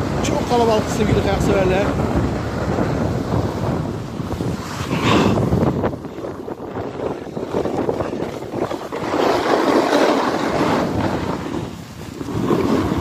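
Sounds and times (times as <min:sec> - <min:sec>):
wind rushing over microphone: 0:00.0 - 0:13.0
skis scraping on snow: 0:07.0 - 0:13.0.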